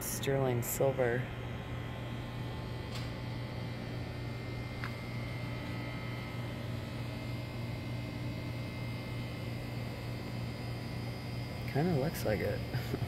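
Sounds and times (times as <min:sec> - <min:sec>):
low room tone hum: 0:00.0 - 0:13.0.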